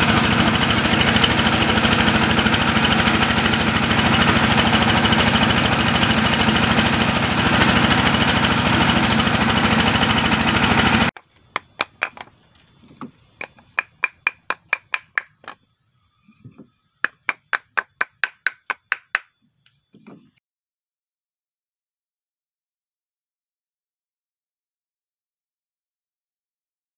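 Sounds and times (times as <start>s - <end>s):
machine humming: 0.0s - 18.9s
charcoal briquettes clinking together: 11.2s - 15.6s.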